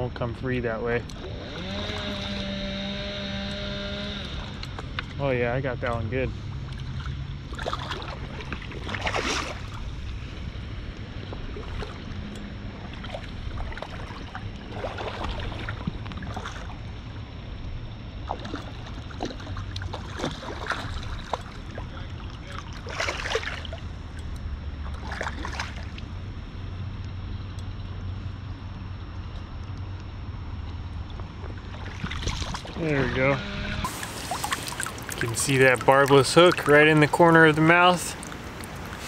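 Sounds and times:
river water flowing: 0.7 - 39.0
wind rumbling on microphone: 3.6 - 39.0.

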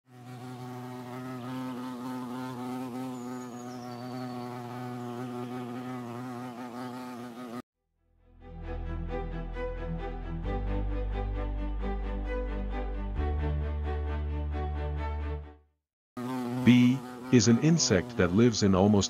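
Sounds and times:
honeybees buzzing: 0.1 - 7.6, 16.2 - 19.0.

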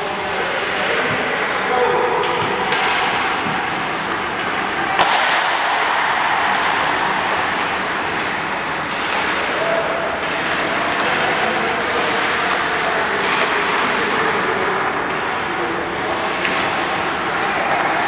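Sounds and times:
hockey stick striking puck: 0.1 - 14.4, 15.0 - 18.0
ice rink hiss: 6.2 - 9.4, 11.8 - 12.6, 15.3 - 18.0.

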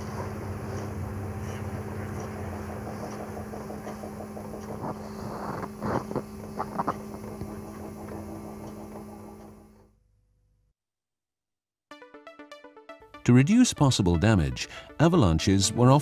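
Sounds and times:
railcar mechanical hum: 0.0 - 9.9.

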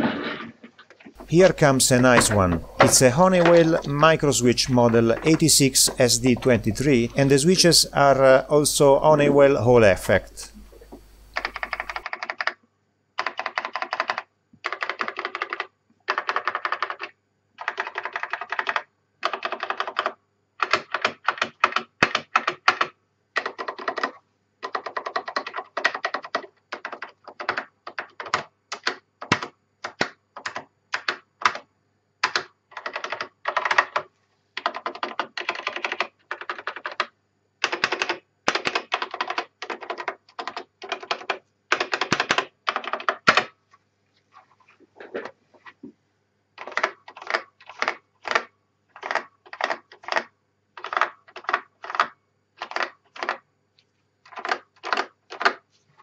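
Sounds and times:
keyboard key clicks: 10.7 - 12.5.

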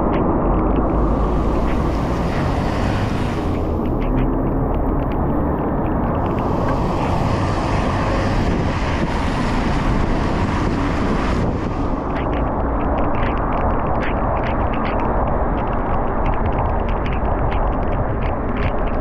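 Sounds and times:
road noise on wet road: 0.0 - 19.0
wind buffeting microphone: 0.0 - 19.0.

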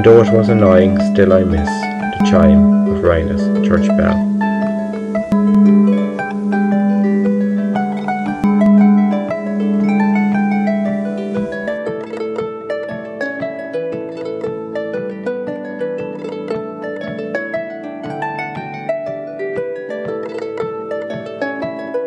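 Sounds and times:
jig on plucked string instrument: 0.0 - 22.0.

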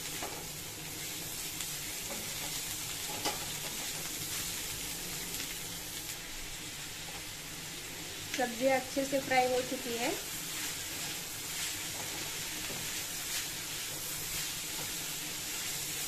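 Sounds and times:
spatula scraping wok: 0.0 - 5.4, 9.1 - 16.0
vegetables sizzling in oil: 0.0 - 16.0.

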